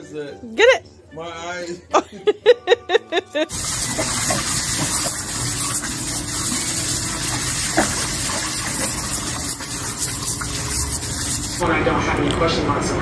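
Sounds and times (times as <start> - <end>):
dog splashing in water: 3.5 - 11.6
hose spraying water into pool: 3.5 - 11.6.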